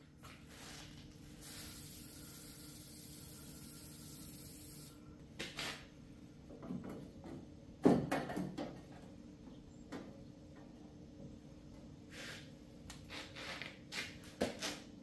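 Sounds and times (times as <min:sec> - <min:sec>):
aerosol spray can hissing: 0:01.4 - 0:04.9
parts knocking and clunking: 0:06.4 - 0:11.4.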